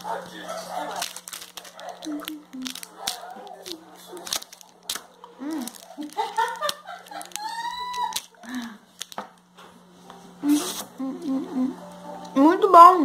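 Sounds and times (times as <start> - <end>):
plastic package crinkling: 0.3 - 9.5.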